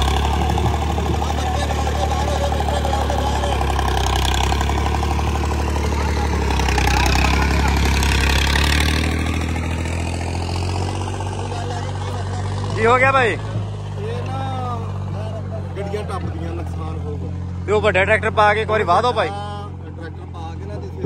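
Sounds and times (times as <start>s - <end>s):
crowd talking: 0.0s - 21.0s
tractor diesel engine running: 0.0s - 21.0s.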